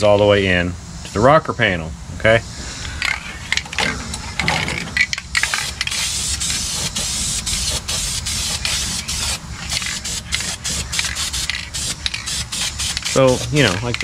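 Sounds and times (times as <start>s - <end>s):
spray paint can hissing: 5.0s - 14.0s.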